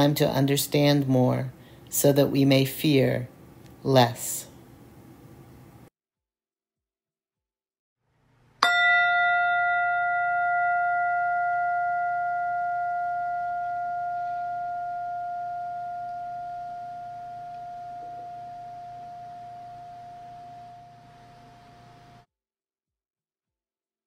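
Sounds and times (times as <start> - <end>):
tingsha cymbals ringing: 8.6 - 22.3.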